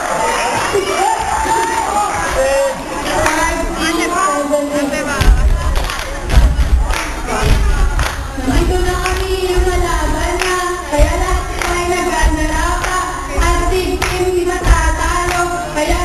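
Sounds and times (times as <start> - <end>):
girls singing a cheer song: 0.1 - 16.0
sharp rhythmic beats: 5.0 - 16.0.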